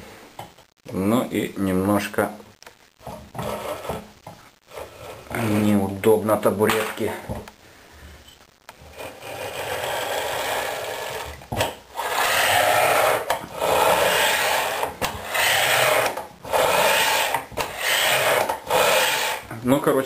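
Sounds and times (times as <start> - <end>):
ball bearings rolling on steel shafts: 12.0 - 19.5.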